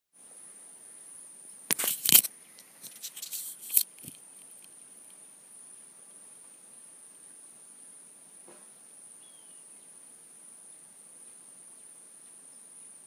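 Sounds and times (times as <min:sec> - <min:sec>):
high-pitched insect chorus: 0:00.2 - 0:13.0.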